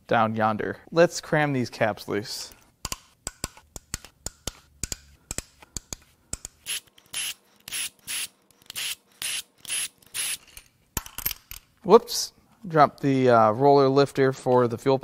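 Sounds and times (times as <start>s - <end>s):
ratchet wrench clicking: 6.4s - 10.5s.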